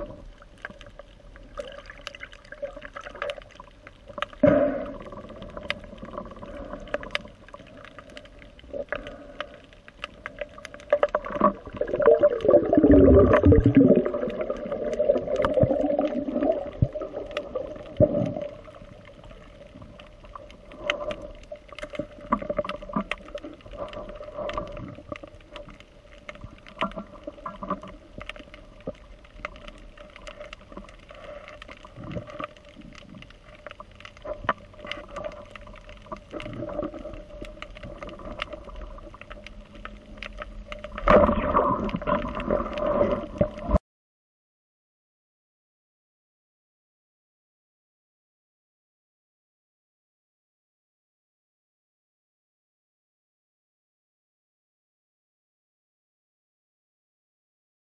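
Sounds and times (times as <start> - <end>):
gurgling bubbling water: 0.0 - 43.8
underwater hum: 0.0 - 43.8.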